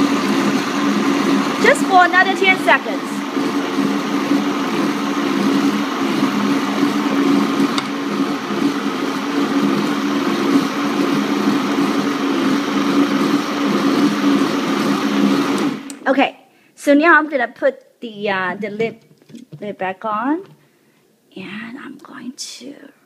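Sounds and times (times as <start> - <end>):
blender motor running: 0.0 - 16.0.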